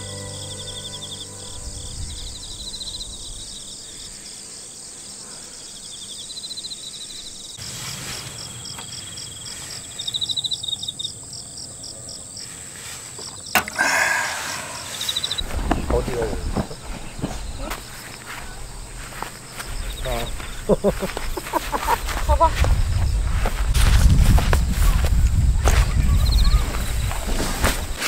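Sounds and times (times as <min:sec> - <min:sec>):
high-pitched insect drone: 0:00.0 - 0:07.6, 0:13.6 - 0:15.5
insects chirping in rapid trills: 0:00.1 - 0:28.0
sharp click: 0:13.6 - 0:13.8.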